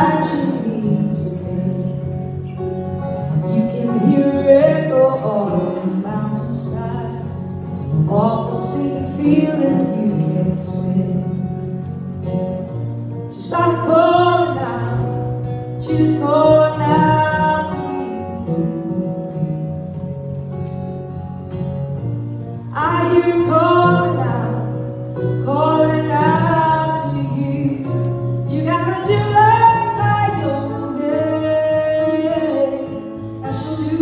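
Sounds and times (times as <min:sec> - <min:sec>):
woman singing: 0:00.0 - 0:12.0, 0:13.3 - 0:19.0, 0:22.6 - 0:34.0
acoustic guitar: 0:00.0 - 0:34.0.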